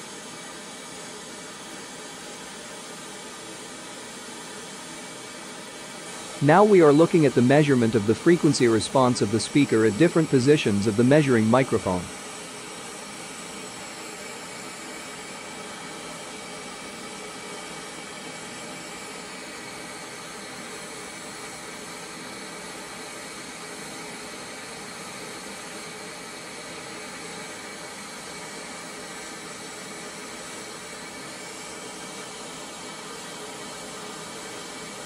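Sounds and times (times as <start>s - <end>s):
noise test signal hiss: 6.0s - 12.1s.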